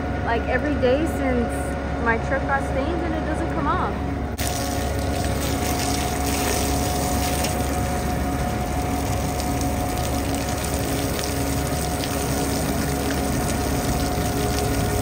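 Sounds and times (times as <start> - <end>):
truck engine running: 0.0 - 15.0
water spraying on steel drum: 4.4 - 15.0.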